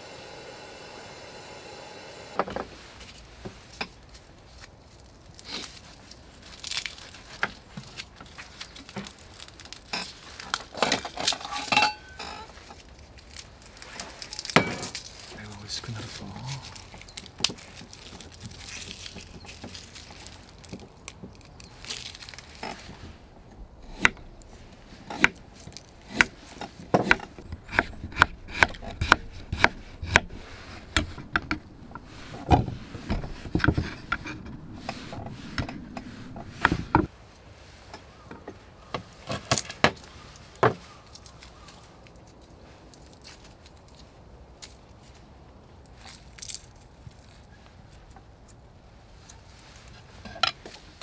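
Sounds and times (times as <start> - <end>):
knife scraping board: 25.0 - 37.1
knife chopping on wooden board: 25.1 - 25.4, 27.0 - 31.6.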